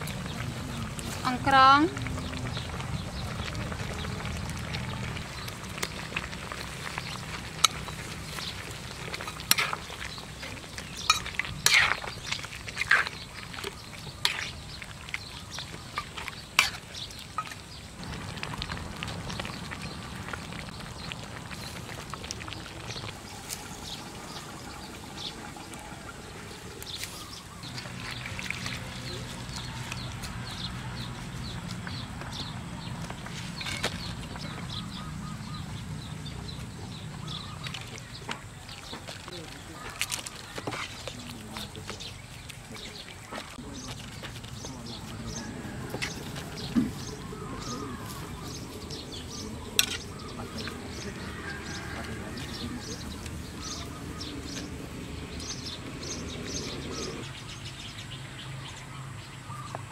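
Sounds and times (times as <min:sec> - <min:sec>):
broth bubbling in a pan: 0:00.0 - 0:30.6.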